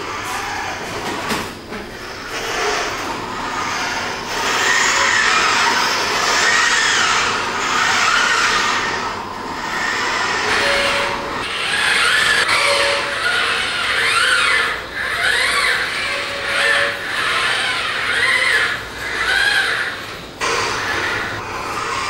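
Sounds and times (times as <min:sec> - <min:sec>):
robot arm motors whirring: 0:00.0 - 0:22.0.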